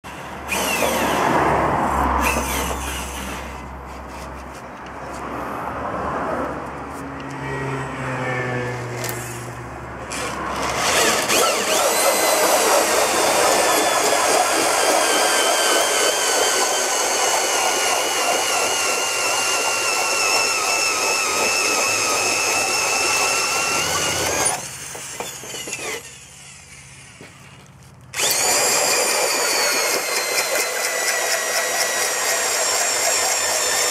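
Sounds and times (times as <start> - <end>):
electric drill motor whining: 0.1 - 1.3, 2.2 - 3.7, 10.1 - 27.6, 28.2 - 33.9
blades shaving wooden post: 10.0 - 33.9.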